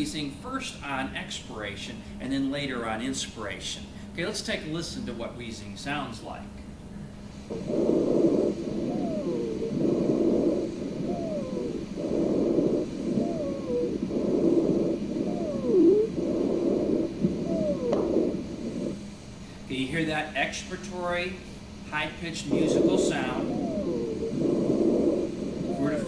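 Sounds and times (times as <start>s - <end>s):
wheezing breaths: 7.1s - 19.7s, 22.4s - 26.0s.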